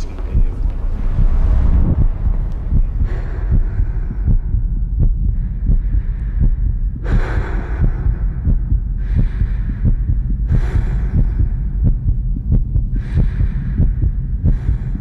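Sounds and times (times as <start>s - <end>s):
deep heartbeat-like throbbing: 0.0s - 15.0s
low hum: 0.0s - 15.0s
hissing noise swells: 0.5s - 4.6s.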